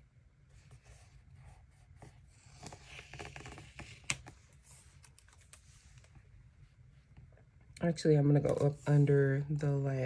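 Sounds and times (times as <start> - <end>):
paper rustling: 2.0 - 6.3.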